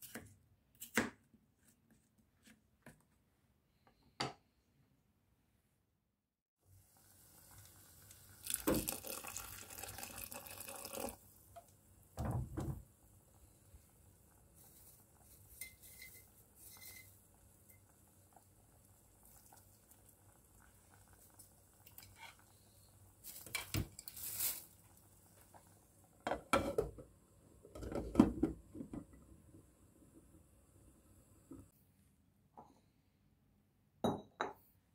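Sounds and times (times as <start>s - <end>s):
faint hiss of water: 6.6s - 12.2s, 12.9s - 26.0s
pots and utensils clattering: 15.5s - 17.2s.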